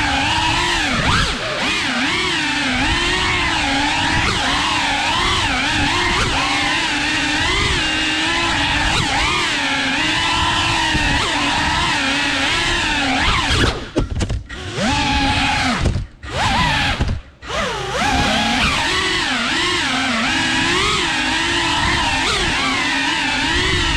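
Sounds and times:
drone motors whining: 0.0s - 23.9s.

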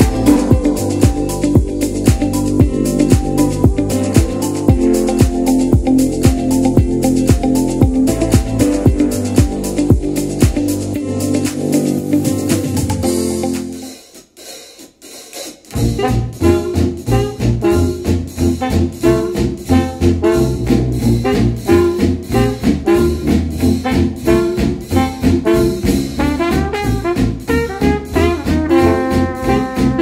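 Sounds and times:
electronic pop music: 0.0s - 14.0s, 27.6s - 30.0s
jazz tune with brass and drums: 0.0s - 30.0s.

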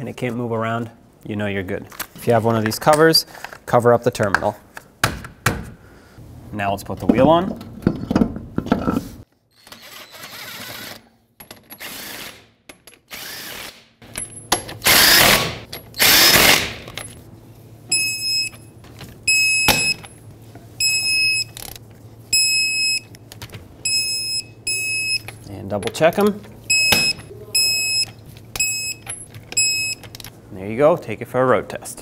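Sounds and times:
impact wrench bursts: 14.8s - 16.9s.

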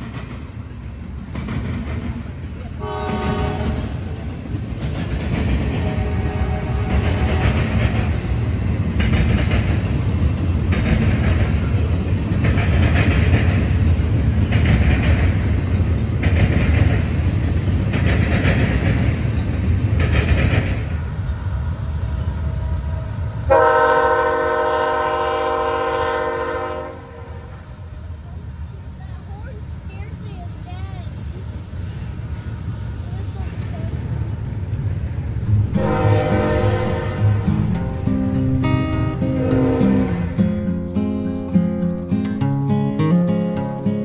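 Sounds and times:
train wheels clacking: 0.0s - 26.9s, 35.4s - 43.7s
freight train rumbling past: 0.0s - 44.0s
locomotive air horn blast: 2.8s - 4.0s, 5.8s - 7.7s, 23.5s - 27.6s, 35.5s - 40.7s.

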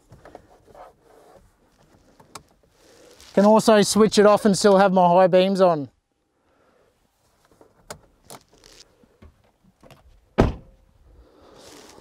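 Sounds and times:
car door shutting thud: 10.4s - 10.8s.

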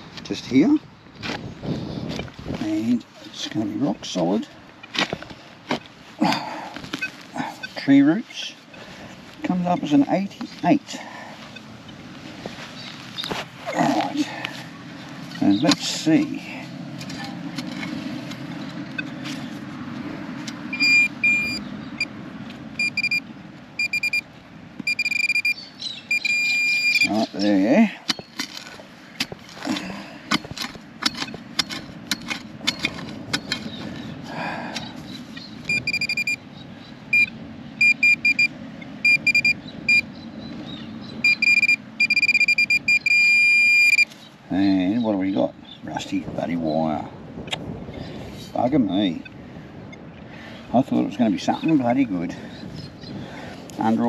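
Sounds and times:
metal detector beeping: 6.9s - 7.9s, 20.7s - 22.1s, 22.8s - 27.3s, 35.6s - 36.4s, 37.1s - 40.1s, 41.2s - 44.2s
digging tool striking ground: 15.5s - 15.9s, 28.0s - 33.8s.

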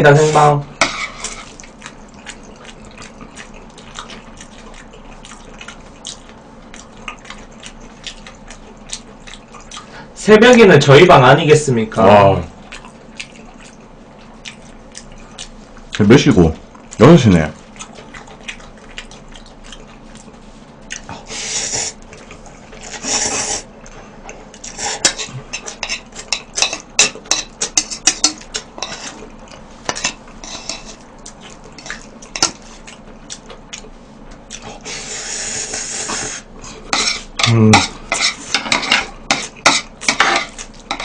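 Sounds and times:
noodle slurping: 22.8s - 23.7s, 34.7s - 38.6s.

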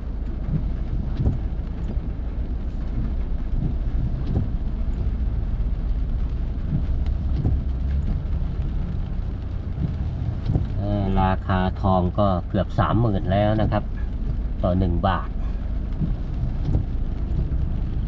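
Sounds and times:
car engine and road rumble: 0.0s - 18.0s
irregular taps and knocks: 0.2s - 2.1s, 2.8s - 5.1s, 6.6s - 10.8s, 15.9s - 17.9s.

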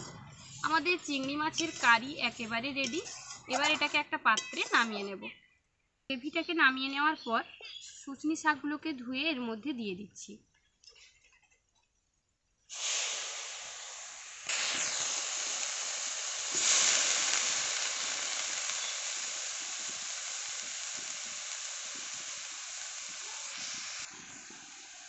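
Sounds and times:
wet leaves sizzling in a wok: 0.6s - 3.8s, 12.7s - 25.0s.

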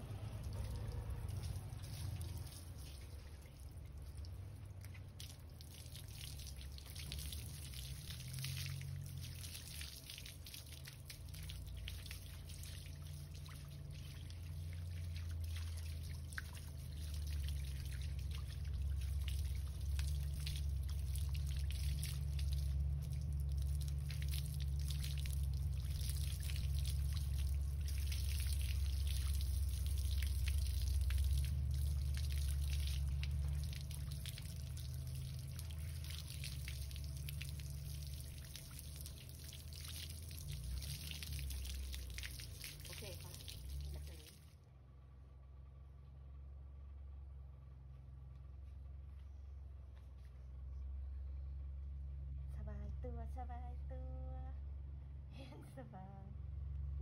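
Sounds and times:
hose water splashing and dripping: 0.0s - 44.5s
low steady hum: 0.0s - 57.0s.

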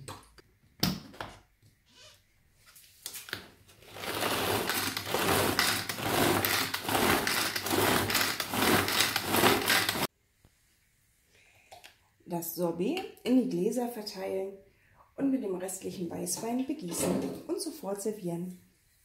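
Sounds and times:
pull-cord chopper whirring and rattling: 3.9s - 10.1s.

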